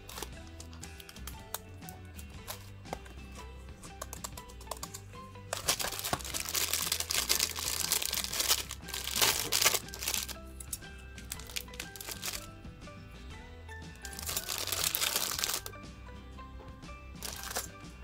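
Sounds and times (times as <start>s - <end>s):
soft background music: 0.0s - 18.0s
plastic bag crinkling: 5.6s - 10.4s, 11.2s - 12.5s, 14.0s - 15.7s, 17.2s - 17.7s.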